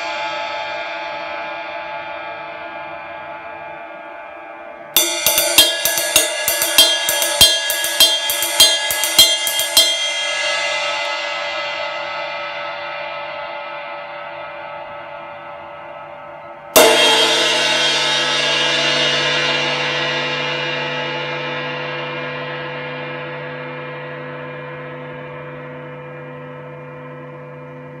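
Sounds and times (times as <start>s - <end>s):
ride cymbal struck and ringing: 5.0s - 13.7s, 16.8s - 21.9s.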